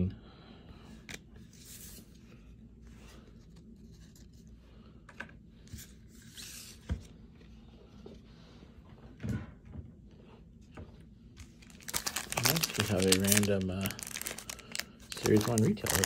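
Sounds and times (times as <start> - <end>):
cards rustling: 11.4 - 16.0.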